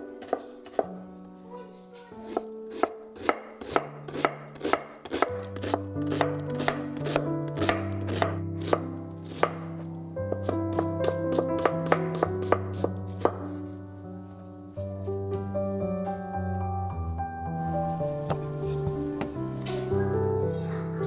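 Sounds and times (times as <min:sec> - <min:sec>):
soft background music: 0:00.0 - 0:21.0
knife chopping on wooden board: 0:00.2 - 0:00.9, 0:02.2 - 0:09.7, 0:10.3 - 0:13.5.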